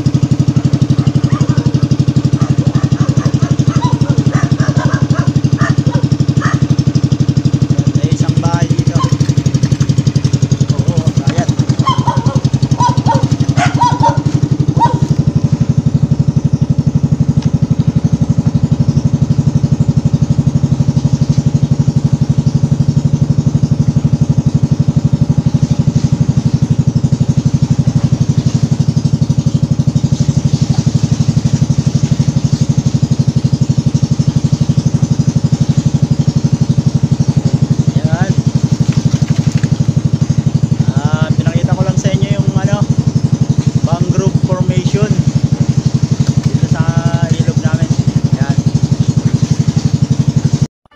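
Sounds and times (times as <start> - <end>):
boat engine running: 0.0 - 50.9.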